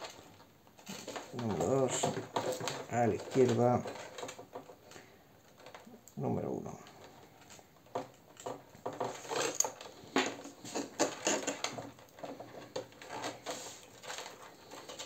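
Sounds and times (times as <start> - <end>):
wires and plastic clicking and rustling: 0.0 - 15.0.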